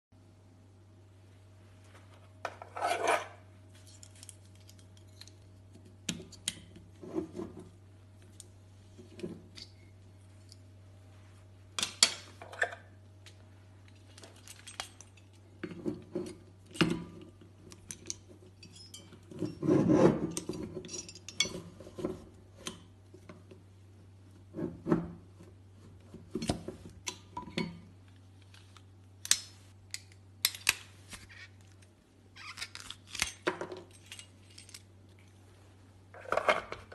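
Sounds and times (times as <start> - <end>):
low steady hum: 0.1 - 36.9
corkscrew scrape: 2.6 - 3.4.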